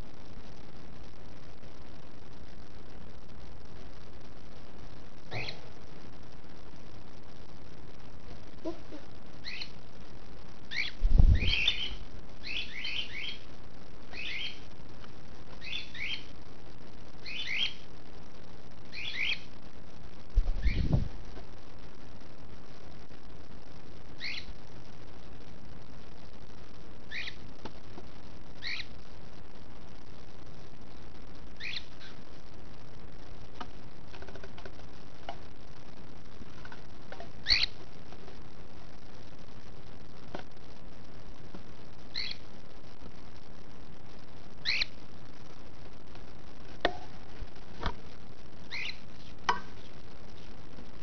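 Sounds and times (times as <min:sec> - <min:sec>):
background hiss: 0:00.0 - 0:51.0
cockatiel chirping: 0:05.3 - 0:05.6, 0:09.4 - 0:09.8, 0:10.7 - 0:13.4, 0:14.1 - 0:14.6, 0:15.6 - 0:16.3, 0:17.2 - 0:17.8, 0:18.9 - 0:19.5, 0:24.2 - 0:24.5, 0:27.1 - 0:27.4, 0:28.6 - 0:28.9, 0:31.6 - 0:32.2, 0:37.4 - 0:37.8, 0:42.1 - 0:42.4, 0:44.6 - 0:44.9, 0:48.7 - 0:50.5.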